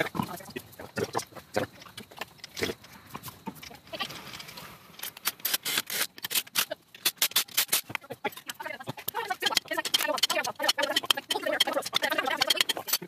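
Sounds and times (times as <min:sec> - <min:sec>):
lug nuts clinking: 0:03.6 - 0:13.0
impact wrench bursts: 0:05.1 - 0:08.0.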